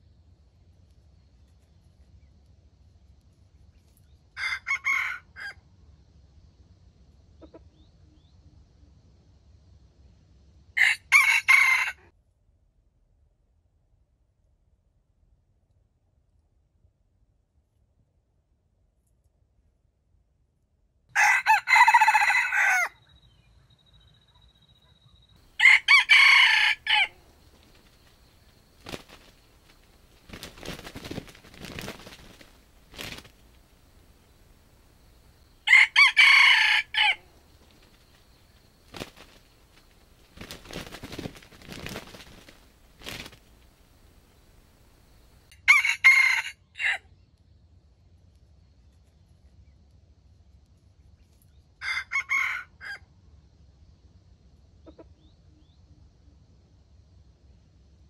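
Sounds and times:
roosters crowing: 4.4s - 5.6s, 10.8s - 12.1s, 21.2s - 23.0s, 25.5s - 44.7s, 45.6s - 47.0s, 51.8s - 53.0s.

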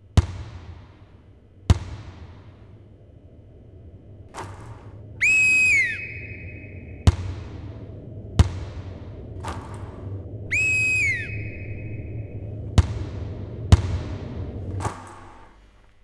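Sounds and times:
basketball bouncing on floor: 0.2s - 2.7s, 7.1s - 7.6s, 8.4s - 10.0s, 12.8s - 15.4s
whistle blasts: 4.4s - 15.2s.

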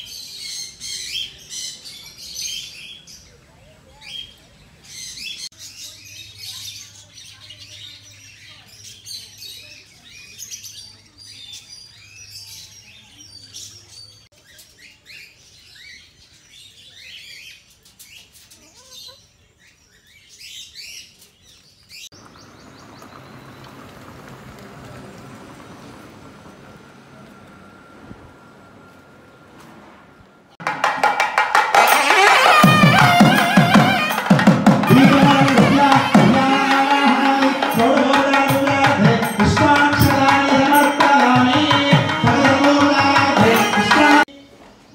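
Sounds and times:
small birds chirping: 0.0s - 27.5s.

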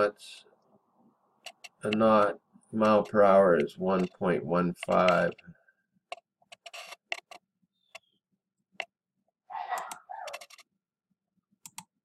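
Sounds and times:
computer mouse clicking: 1.4s - 4.2s, 4.8s - 5.4s, 9.7s - 10.6s, 11.6s - 12.0s.

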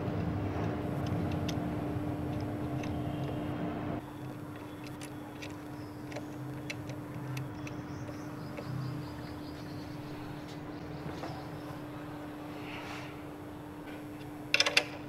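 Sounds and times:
steady low hum: 0.0s - 15.0s
small metal parts clicking: 4.0s - 9.3s.

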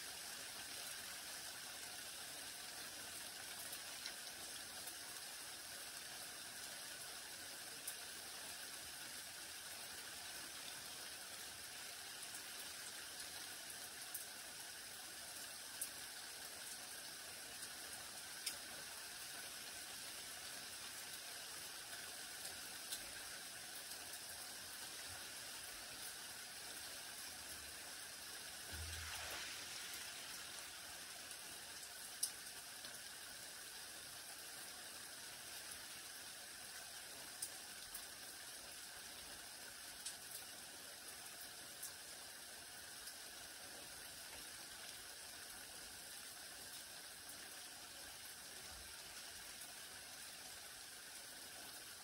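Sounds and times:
light rain on foliage: 0.0s - 52.0s
single raindrops landing close: 28.6s - 30.6s.

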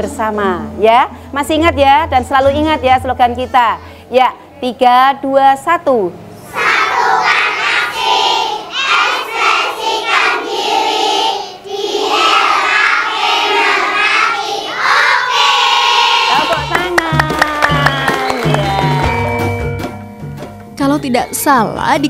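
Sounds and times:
children chanting in unison: 6.4s - 16.5s
background music: 16.4s - 22.0s.

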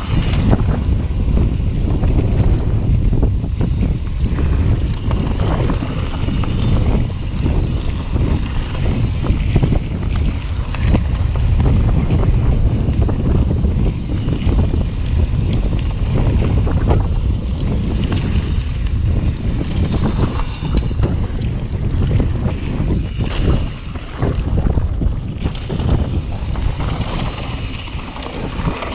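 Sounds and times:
bike rattling and knocking: 0.0s - 28.9s
tyres on dirt trail: 0.0s - 28.9s
wind rumbling on microphone: 0.0s - 28.9s.

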